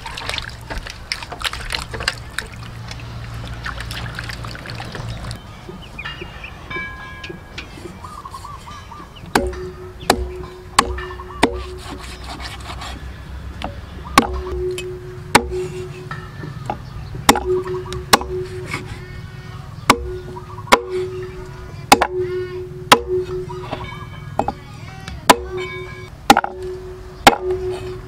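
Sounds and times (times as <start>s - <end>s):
cleaver chopping on wooden block: 9.3s - 12.8s, 13.6s - 15.8s, 16.7s - 18.7s, 19.9s - 21.2s, 21.9s - 22.3s, 25.3s - 28.0s.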